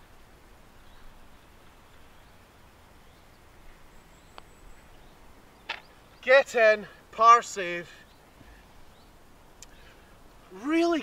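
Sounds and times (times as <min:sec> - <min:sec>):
faint bird calls: 0:00.7 - 0:07.0, 0:07.9 - 0:10.3.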